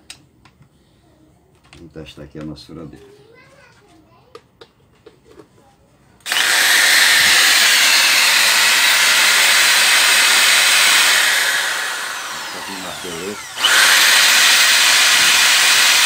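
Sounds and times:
electric impact drill running: 0:06.2 - 0:16.0.

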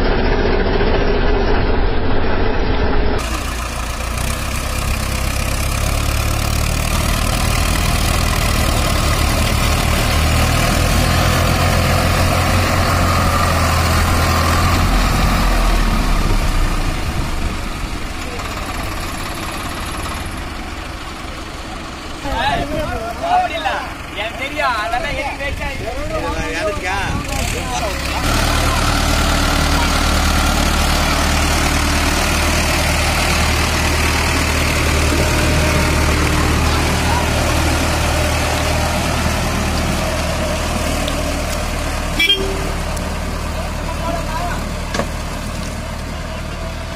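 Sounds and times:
diesel tractor engines running: 0:00.0 - 0:46.9.

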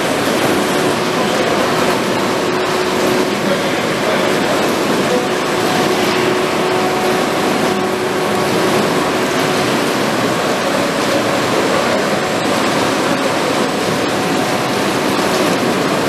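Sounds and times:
machinery rushing: 0:00.0 - 0:16.0.

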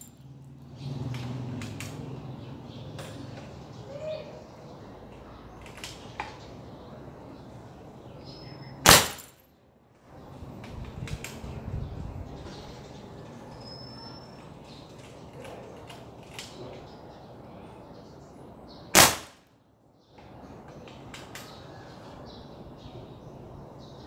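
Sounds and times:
air rifle shot: 0:08.8 - 0:09.4, 0:19.0 - 0:19.4.

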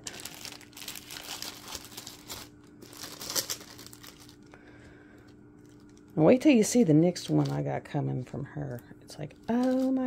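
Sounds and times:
plastic packaging crinkling: 0:00.0 - 0:04.6, 0:05.6 - 0:07.7, 0:09.3 - 0:10.0.

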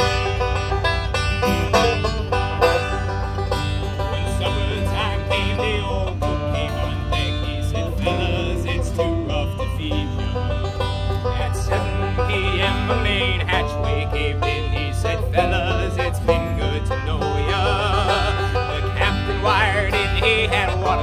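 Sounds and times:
acoustic guitar: 0:00.0 - 0:21.0
banjo: 0:00.0 - 0:21.0.

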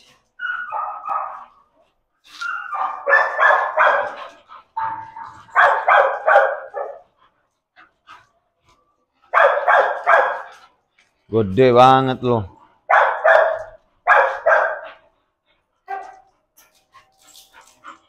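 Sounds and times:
dogs barking: 0:00.4 - 0:01.8, 0:02.4 - 0:07.2, 0:09.3 - 0:10.6, 0:12.8 - 0:15.2, 0:15.8 - 0:16.3.

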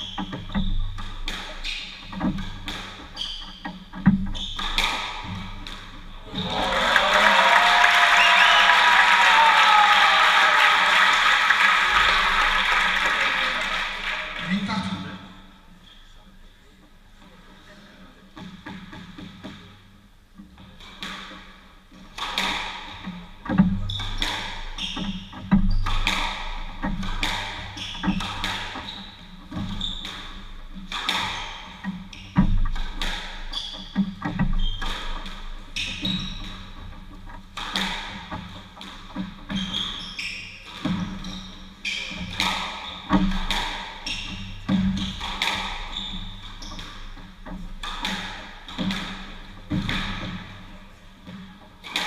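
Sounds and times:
shoes squeaking on wooden floor: 0:00.0 - 0:05.7, 0:27.6 - 0:30.6, 0:35.8 - 0:37.4, 0:38.8 - 0:47.6
squash ball hitting racket and walls: 0:00.0 - 0:06.7, 0:20.5 - 0:52.0.

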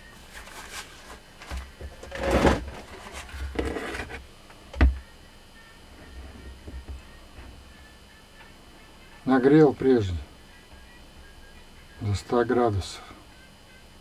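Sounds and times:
metal part scraping on workbench: 0:02.0 - 0:04.2.

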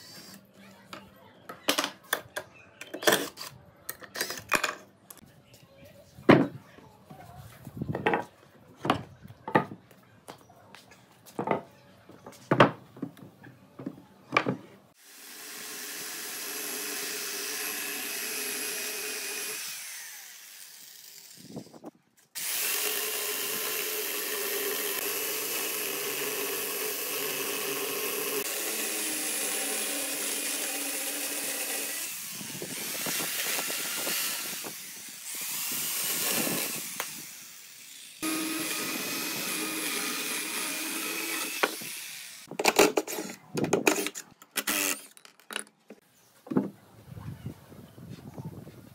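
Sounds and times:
electric chainsaw cutting branch: 0:15.0 - 0:21.7, 0:22.4 - 0:43.0, 0:43.9 - 0:45.2.

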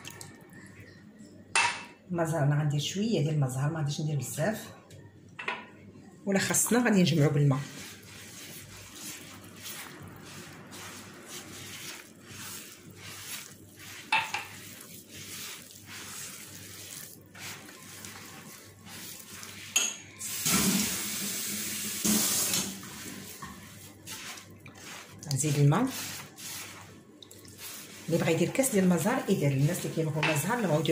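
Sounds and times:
hands scraping dough in clay dish: 0:06.6 - 0:19.9, 0:22.8 - 0:30.9
running water: 0:06.6 - 0:30.9.

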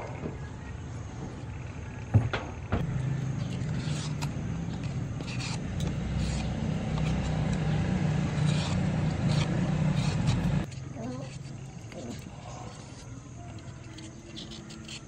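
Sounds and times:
low engine hum: 0:01.6 - 0:10.7
vegetable peeler scraping: 0:02.8 - 0:15.0.

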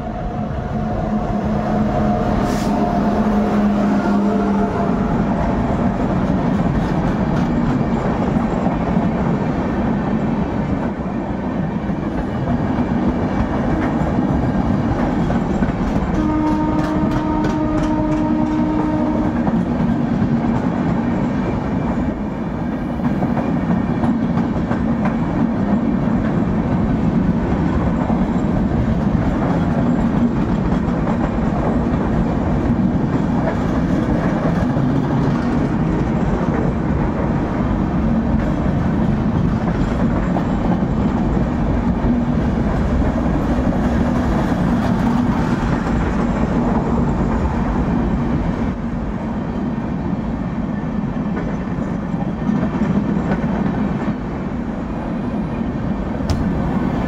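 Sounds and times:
train wheels on rail: 0:00.0 - 0:57.0
train horn: 0:00.3 - 0:05.6, 0:16.1 - 0:19.6
clickety-clack over rail joints: 0:01.8 - 0:57.0.

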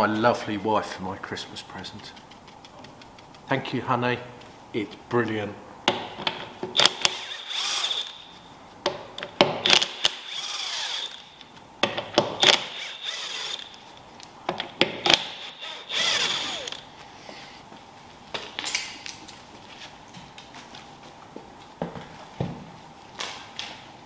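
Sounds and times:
impact wrench hammering: 0:14.8 - 0:16.8.

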